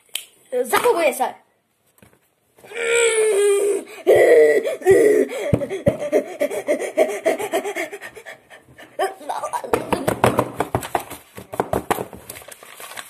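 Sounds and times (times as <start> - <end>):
boy laughing loudly: 2.9 - 10.2.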